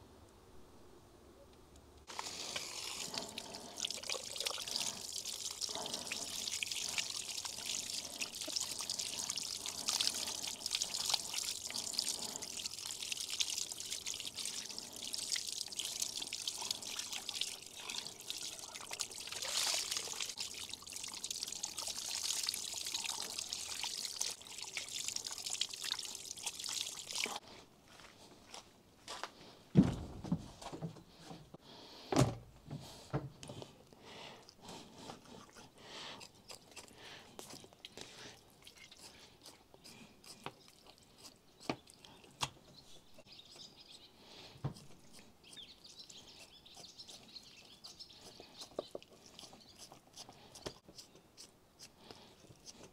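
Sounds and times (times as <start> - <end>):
water splashing over meat: 2.1 - 27.4
heavy thumps: 29.7 - 31.0.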